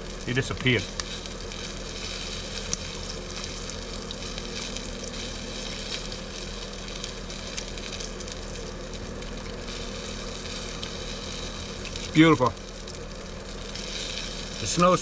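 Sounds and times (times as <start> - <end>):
bacon sizzling in a pan: 0.0 - 15.0.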